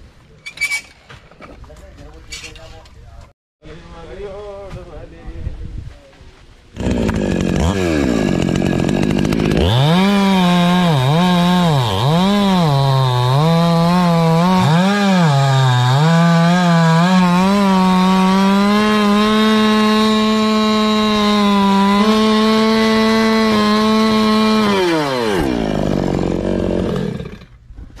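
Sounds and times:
chainsaw cutting wood: 6.8 - 27.6.

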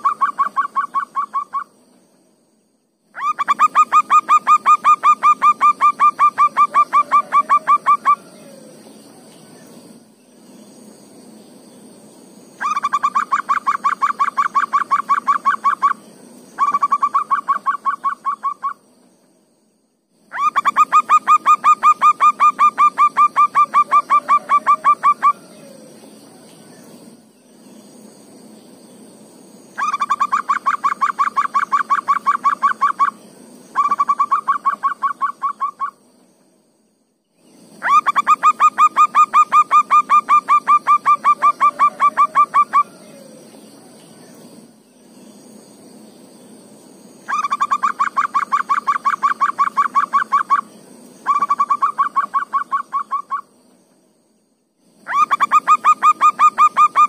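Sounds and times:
high-pitched insect buzz: 0.0 - 57.0
dove cooing: 3.2 - 8.8, 20.3 - 26.0, 37.8 - 43.5.

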